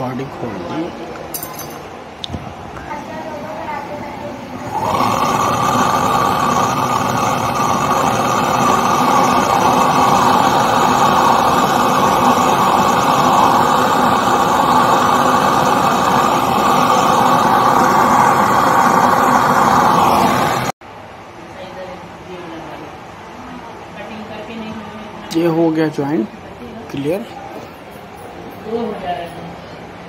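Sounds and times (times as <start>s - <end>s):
gas torch hissing: 4.0s - 20.8s.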